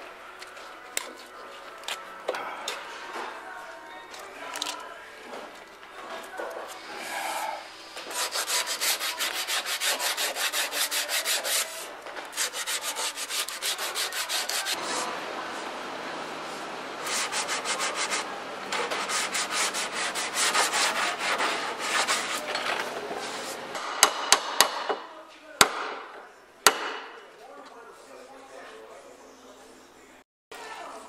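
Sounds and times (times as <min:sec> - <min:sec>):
sandpaper scraping strokes: 0:08.0 - 0:15.1, 0:17.0 - 0:23.7.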